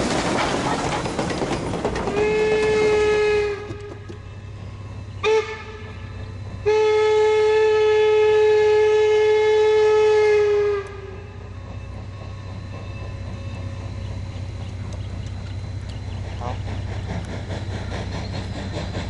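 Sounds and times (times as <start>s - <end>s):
low rumble of running train: 0.0s - 19.0s
steam locomotive whistle: 2.1s - 4.1s, 5.2s - 11.6s.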